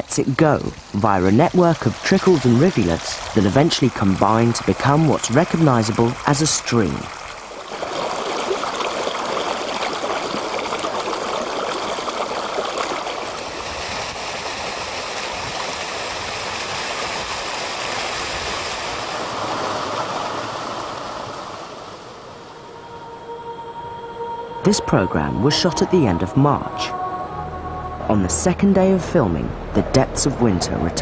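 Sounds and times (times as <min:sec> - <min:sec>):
stream splashing over stones: 0:00.0 - 0:22.0.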